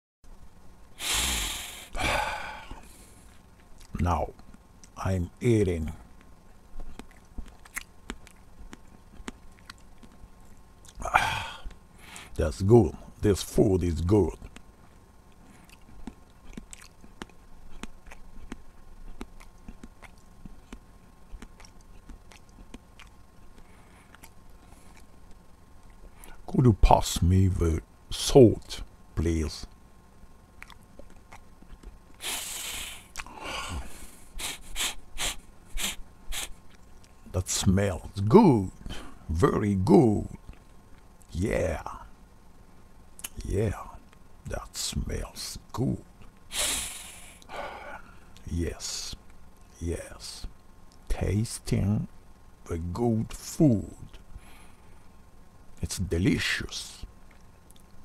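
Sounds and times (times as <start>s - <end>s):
loud breath: 1.0s - 3.3s, 46.5s - 48.3s
man sniffing: 1.0s - 3.3s, 32.2s - 36.6s, 46.5s - 48.2s
person chewing: 2.9s - 5.0s, 6.1s - 11.0s, 15.3s - 26.4s, 30.6s - 37.3s, 43.2s - 43.4s.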